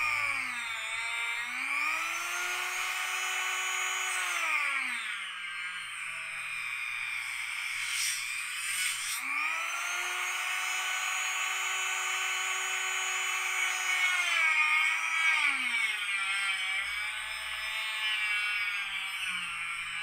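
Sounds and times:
rotary tool motor whine: 0.0s - 20.0s
gritty cutting hiss: 7.6s - 9.3s.

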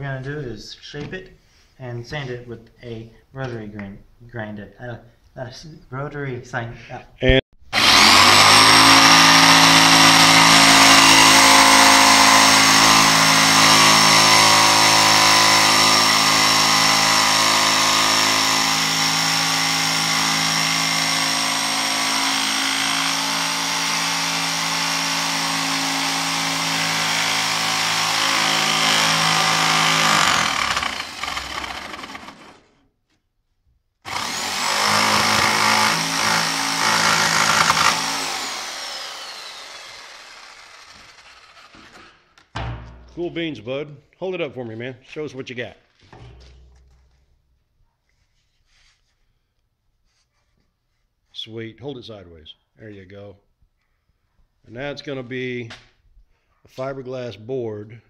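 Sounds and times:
electric jigsaw cutting: 7.7s - 32.8s, 34.1s - 42.2s.

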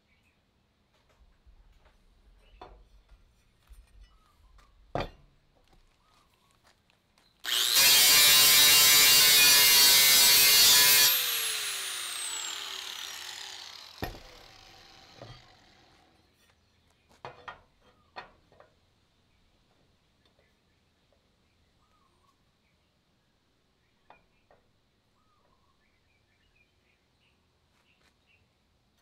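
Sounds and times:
grinder spinning down whine: 7.4s - 16.1s
angle grinder cutting metal: 7.4s - 16.2s.

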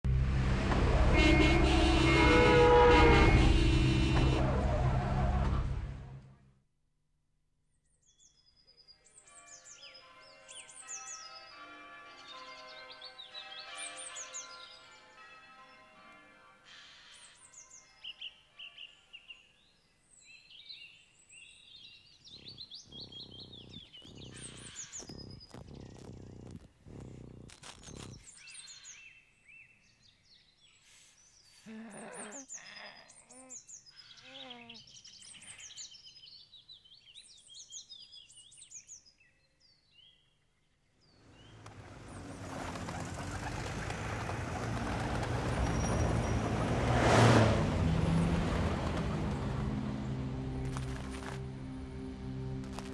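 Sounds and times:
city traffic: 0.0s - 6.4s, 41.3s - 52.9s
rushing noises: 0.1s - 6.1s, 41.5s - 51.6s
small birds chirping: 20.2s - 43.9s
soft music: 49.7s - 52.9s.

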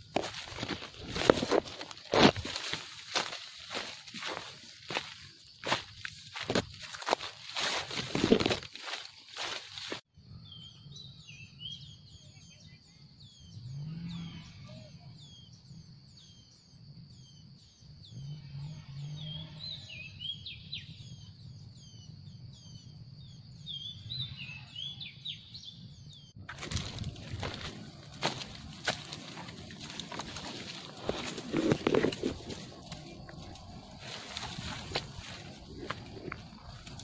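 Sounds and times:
footsteps crunching through dry leaves: 0.0s - 10.1s, 26.4s - 37.0s
high insect drone: 26.5s - 37.0s.

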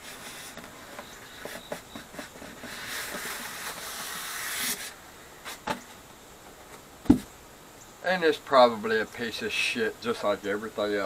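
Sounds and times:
foam scraping against cardboard: 0.0s - 5.8s.

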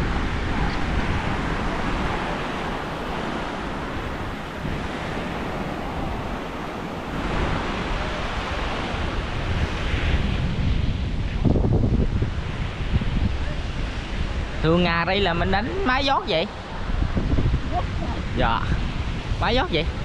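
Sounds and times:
sea surf washing on shore: 0.0s - 20.0s
wind buffeting microphone: 0.0s - 20.0s.

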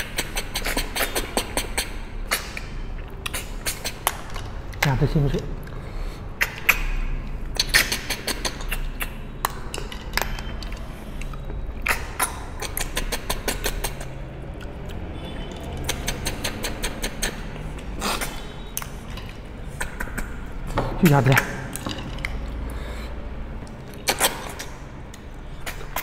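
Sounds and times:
sharp sucking slurps and clicks: 10.7s - 20.4s.

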